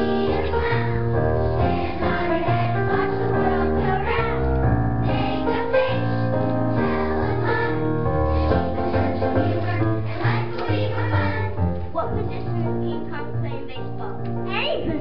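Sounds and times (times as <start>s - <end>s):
children's choir singing: 0.0s - 11.8s
instrumental accompaniment: 0.0s - 15.0s.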